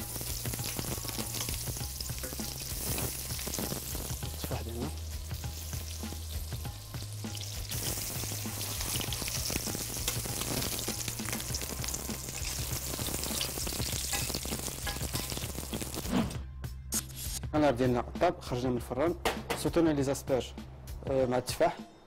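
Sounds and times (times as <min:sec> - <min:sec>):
apples sizzling in butter: 0:00.0 - 0:16.2.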